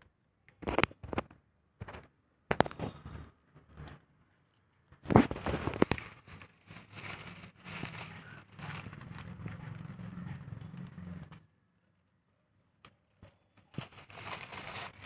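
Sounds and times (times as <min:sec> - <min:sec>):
corn husks crackling and rustling: 0:05.0 - 0:12.1, 0:12.8 - 0:15.0.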